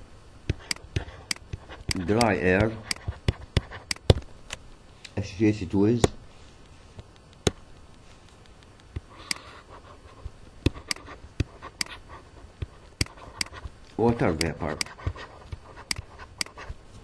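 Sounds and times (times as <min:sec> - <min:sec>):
stylus clicking on pen tablet: 0:00.5 - 0:04.2, 0:10.6 - 0:12.0, 0:12.6 - 0:16.7.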